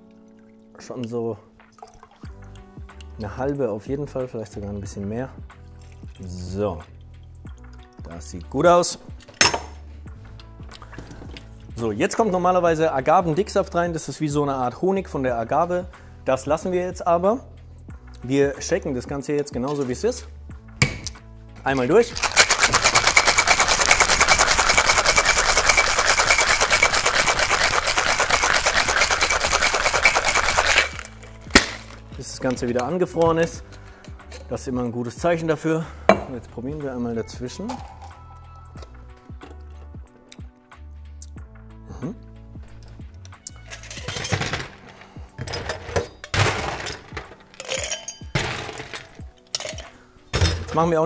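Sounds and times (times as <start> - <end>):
ice rattling in cocktail shaker: 21.8 - 32.7, 37.7 - 38.2, 43.5 - 44.9, 45.7 - 49.9.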